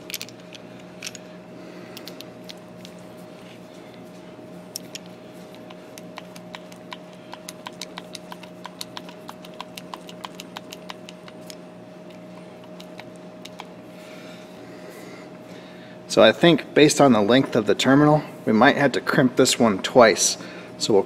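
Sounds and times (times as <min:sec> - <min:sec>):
steady hum: 0:00.0 - 0:21.0.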